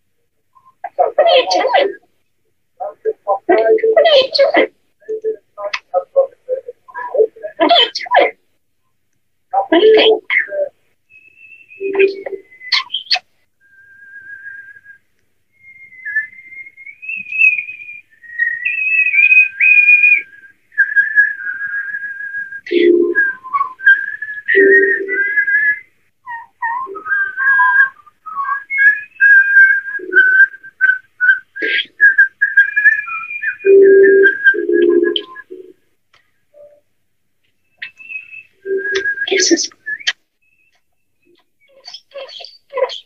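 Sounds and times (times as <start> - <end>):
starling whistling: 10.0 - 35.7, 37.6 - 43.0.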